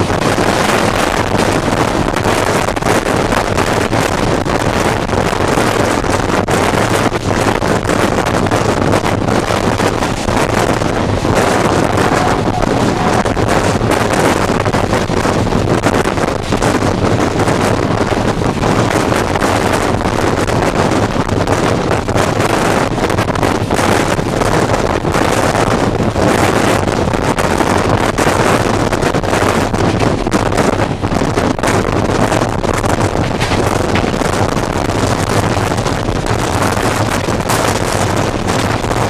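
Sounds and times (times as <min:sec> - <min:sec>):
train rolling on track: 0:00.0 - 0:39.0
wind buffeting microphone: 0:00.0 - 0:39.0.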